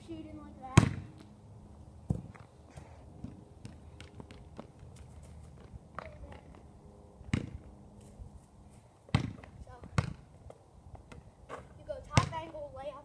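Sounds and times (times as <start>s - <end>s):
basketball thudding on asphalt: 0.7s - 1.3s, 2.0s - 2.5s, 3.2s - 6.6s, 7.2s - 7.7s, 9.1s - 12.6s
footsteps on pavement: 2.1s - 6.7s, 10.4s - 12.6s.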